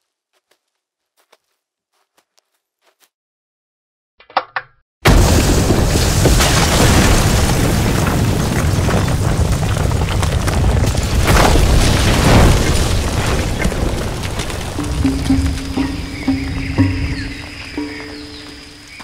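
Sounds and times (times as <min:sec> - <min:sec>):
deep rumbling boom: 0:05.1 - 0:19.0.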